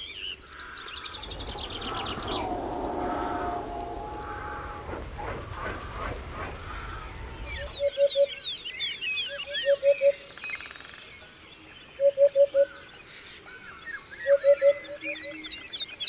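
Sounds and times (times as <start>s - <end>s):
songbirds chirping and trilling: 0.0s - 16.0s.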